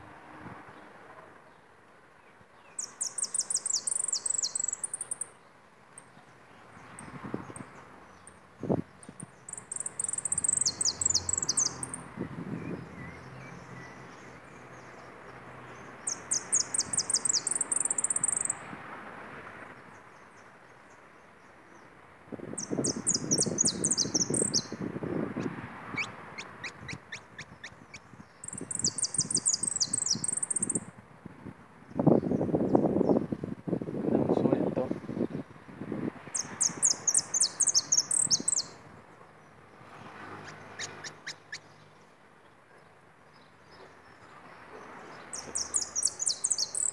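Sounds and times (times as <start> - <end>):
finch singing high whistled notes: 2.8 - 5.2, 9.5 - 12.0, 16.1 - 18.6, 22.6 - 24.8, 28.5 - 30.8, 36.4 - 38.8, 45.4 - 46.9.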